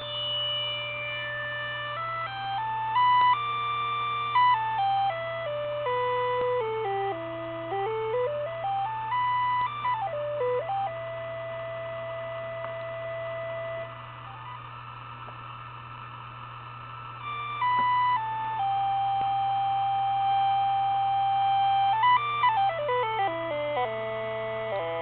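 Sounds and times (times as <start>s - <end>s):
synthesizer electronic tones: 0.0s - 3.4s.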